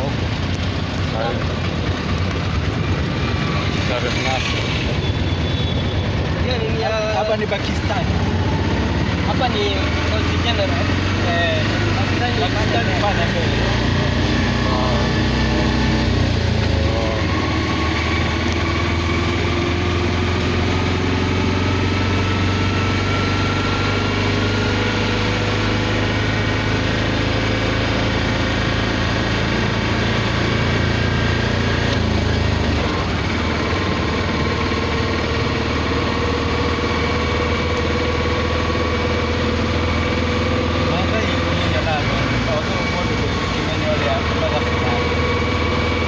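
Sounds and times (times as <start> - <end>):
street noise: 0.0 - 46.0
vehicle engine running: 0.0 - 46.0.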